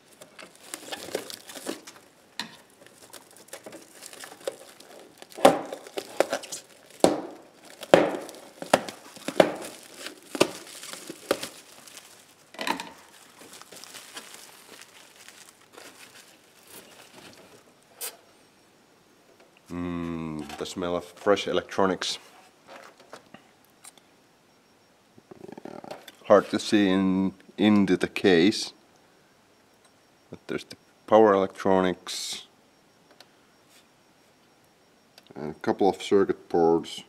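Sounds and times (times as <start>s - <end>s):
plastic wrapping crinkling and tearing: 0.0s - 17.7s.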